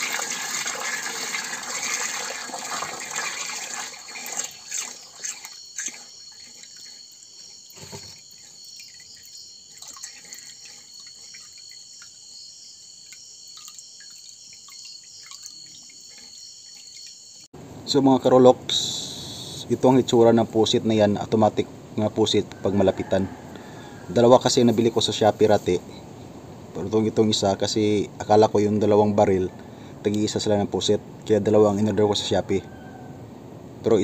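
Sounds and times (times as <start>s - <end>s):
water jetting into a drum: 0.0s - 12.3s, 13.1s - 17.4s
water drips: 0.0s - 17.5s.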